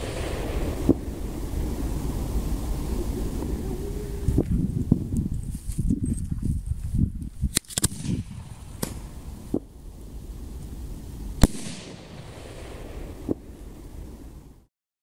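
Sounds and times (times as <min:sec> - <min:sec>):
firework pops: 0:07.5 - 0:09.7, 0:11.4 - 0:13.5.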